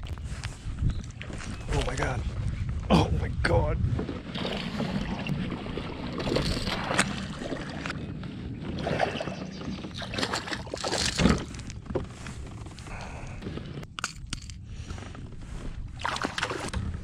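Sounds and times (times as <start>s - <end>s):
fish splashing in water: 16.0s - 16.8s.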